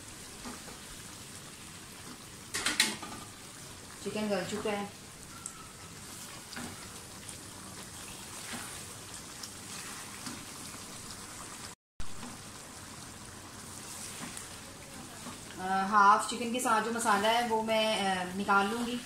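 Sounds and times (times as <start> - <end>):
food sizzling in a wok: 0.0 - 19.0
spatula stirring in a wok: 5.6 - 17.8.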